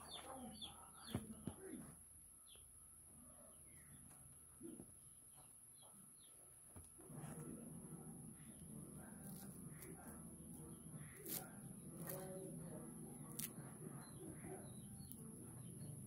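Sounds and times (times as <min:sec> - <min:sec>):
faint bird chirps: 0:00.0 - 0:06.6.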